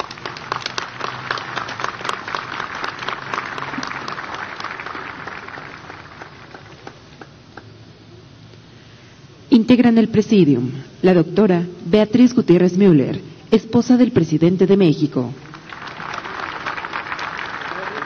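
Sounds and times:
audience applauding: 0:00.0 - 0:07.7, 0:15.4 - 0:18.0.

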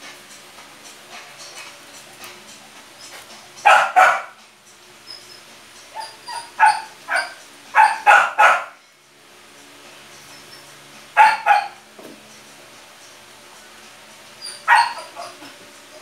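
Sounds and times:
small dog barking: 0:03.6 - 0:04.4, 0:06.0 - 0:08.8, 0:11.2 - 0:11.8, 0:14.6 - 0:15.5.

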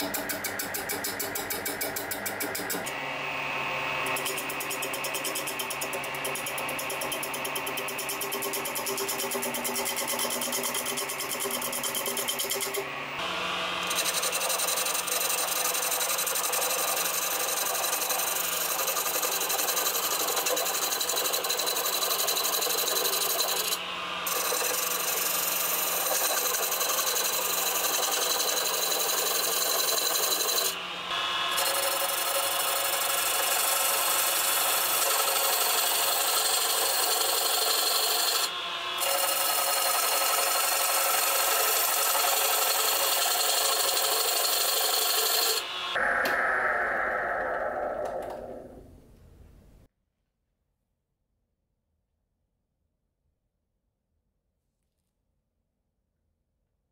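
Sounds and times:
wood lathe running: 0:00.0 - 0:48.8
gouge scraping wood on lathe: 0:13.8 - 0:45.6.

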